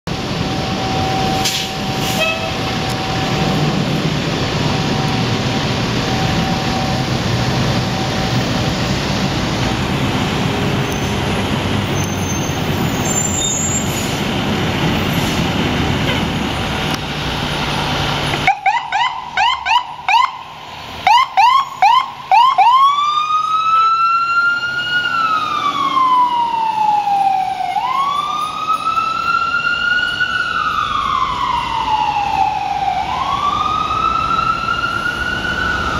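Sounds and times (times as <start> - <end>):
fire truck engine running: 0.1 - 35.9
street noise: 0.1 - 35.9
siren yelping and wailing: 18.4 - 35.9.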